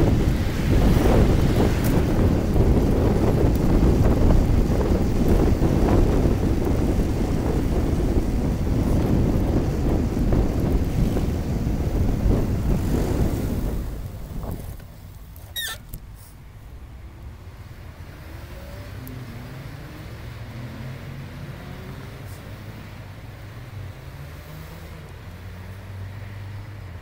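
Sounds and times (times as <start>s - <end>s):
wind buffeting microphone: 0.0s - 16.2s.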